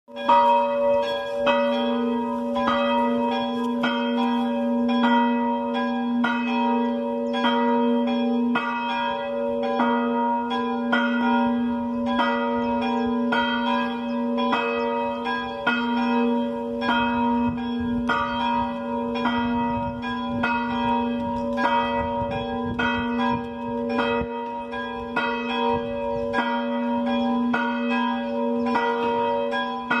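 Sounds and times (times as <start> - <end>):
church bells pealing: 0.1 - 30.0.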